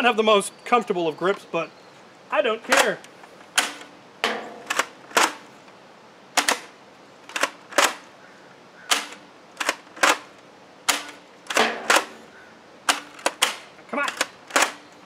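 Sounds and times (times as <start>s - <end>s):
toy blaster plastic clacks: 12.9s - 14.8s.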